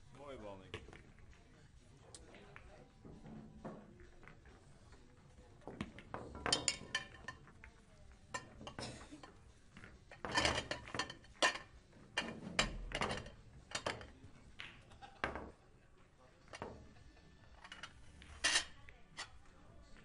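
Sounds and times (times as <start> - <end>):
pool balls clacking: 5.6 - 15.7, 16.4 - 18.7.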